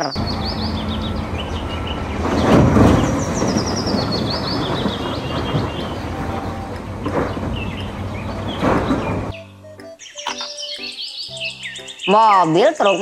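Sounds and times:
birds chirping: 0.0s - 13.0s
steady rumbling noise: 0.2s - 9.3s.

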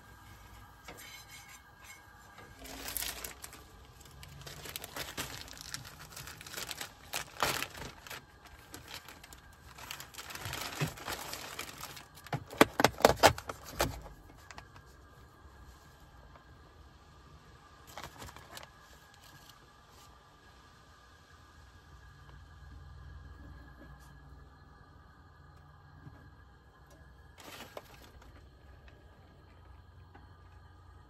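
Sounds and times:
plastic bag crinkling: 2.3s - 14.6s, 17.8s - 19.5s, 27.4s - 29.2s
sharp plastic crackles: 2.4s - 14.9s, 17.8s - 19.5s, 27.4s - 29.0s.

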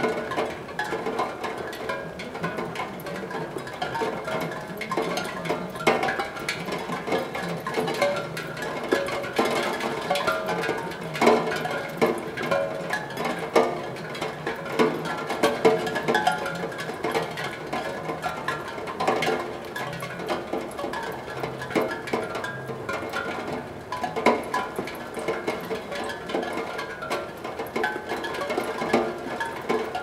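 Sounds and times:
raindrops ticking on metal: 0.0s - 30.0s.

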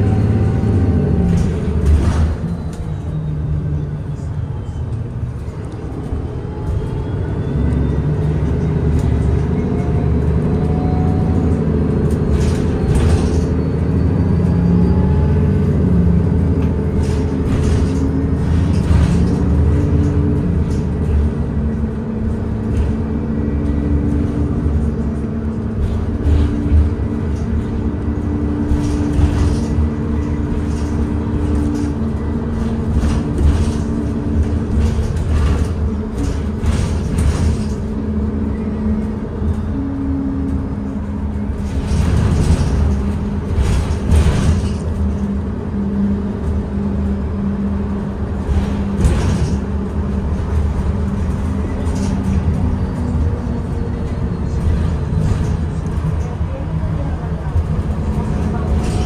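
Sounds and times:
bus cabin rumble: 0.0s - 59.0s.

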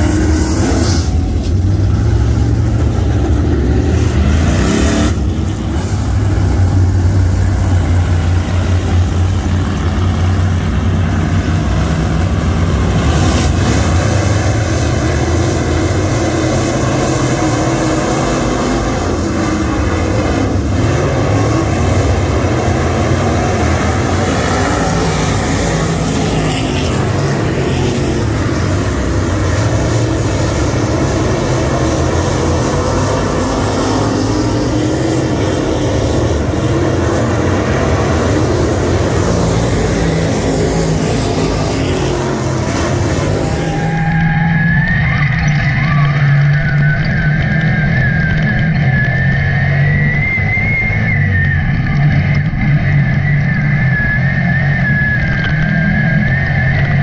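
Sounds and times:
race car engines droning: 0.0s - 57.0s.

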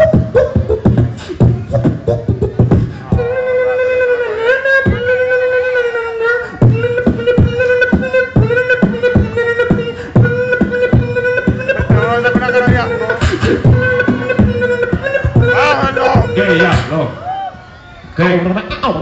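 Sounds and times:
beatboxing kick and snare: 0.0s - 3.4s, 6.6s - 17.0s
held vocal tone: 0.0s - 17.1s.

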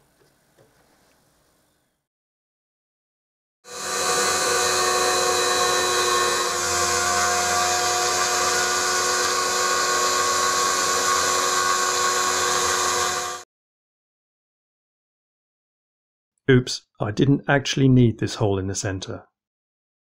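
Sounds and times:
milling machine cutting metal: 3.7s - 13.4s.

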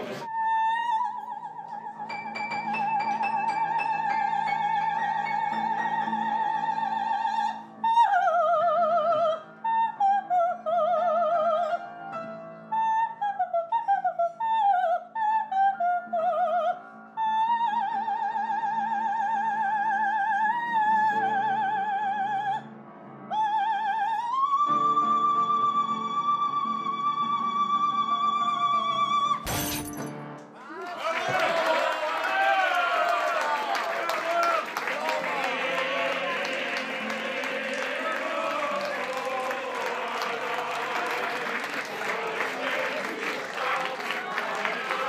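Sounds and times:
soprano singing opera: 0.3s - 12.0s, 12.7s - 22.7s, 23.3s - 29.4s, 35.0s - 45.0s
piano accompaniment: 1.7s - 7.8s.

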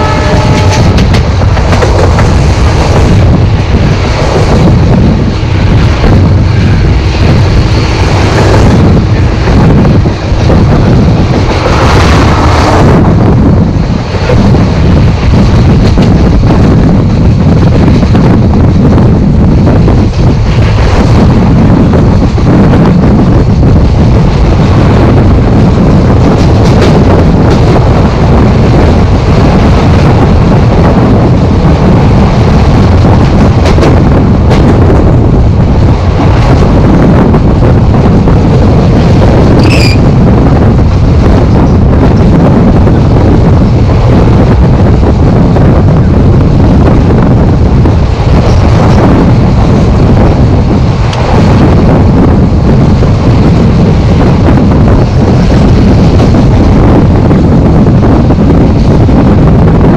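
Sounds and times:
train running on track: 0.0s - 59.9s
wind buffeting microphone: 0.0s - 59.9s
high squeal: 39.6s - 40.1s.

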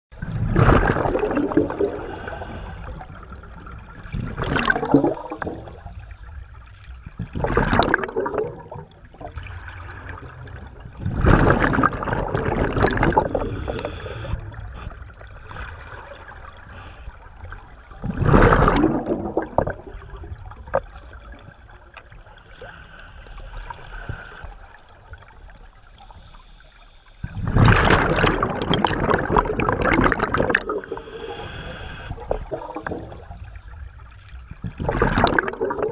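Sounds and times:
underwater bubbles bursting: 0.1s - 22.4s, 27.2s - 35.9s.

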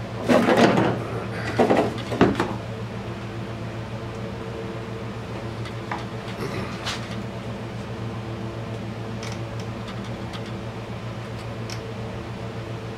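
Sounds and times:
steady low hum: 0.0s - 12.9s.

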